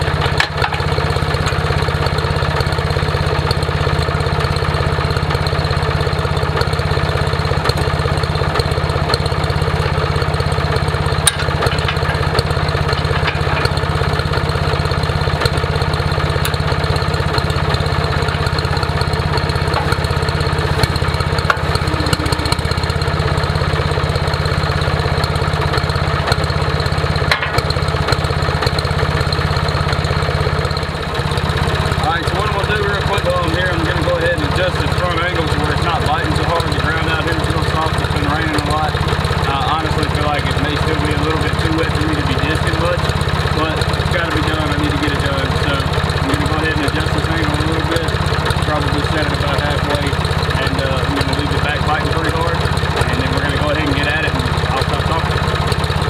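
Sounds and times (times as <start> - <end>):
tractor engine idling: 0.0 - 56.0
metal clank: 11.2 - 13.8, 27.3 - 27.7.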